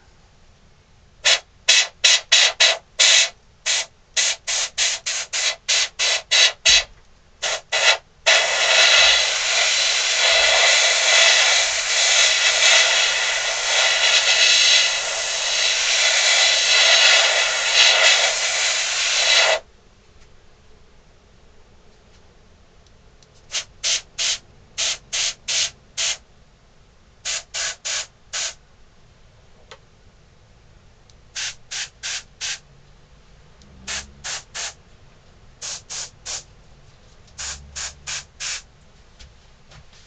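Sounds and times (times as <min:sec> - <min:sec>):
airbrush spraying hiss: 0:01.2 - 0:19.6, 0:23.5 - 0:26.2, 0:27.2 - 0:28.6, 0:31.4 - 0:32.6, 0:33.8 - 0:34.8, 0:35.6 - 0:36.5, 0:37.3 - 0:38.7.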